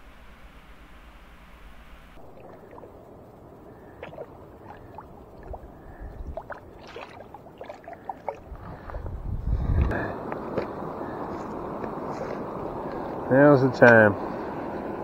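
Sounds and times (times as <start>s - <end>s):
river water gurgling over rocks: 2.2s - 8.7s.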